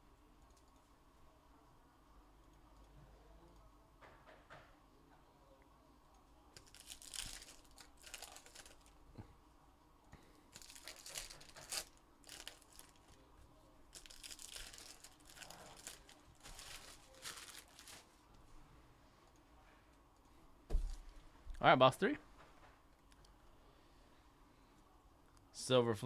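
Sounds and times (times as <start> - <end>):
foil wrappers crinkling and tearing: 6.6 - 9.0, 10.5 - 13.3, 13.9 - 18.2.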